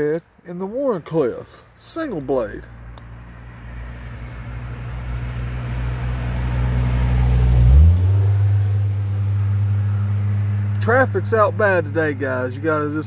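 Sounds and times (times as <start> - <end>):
vehicle engine hum: 1.6 - 13.0.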